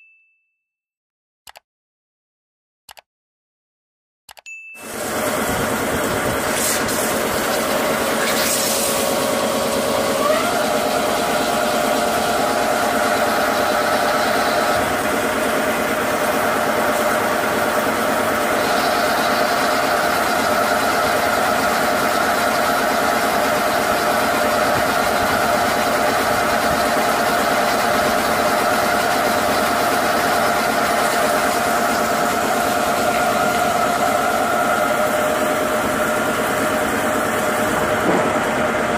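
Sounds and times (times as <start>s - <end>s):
lathe spindle hum: 4.9s - 38.9s
coolant spray hiss: 6.4s - 10.2s.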